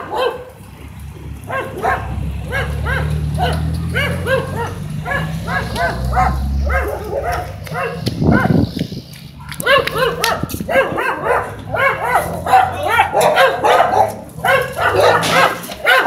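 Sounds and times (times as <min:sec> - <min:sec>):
dogs barking: 0:00.0 - 0:16.0.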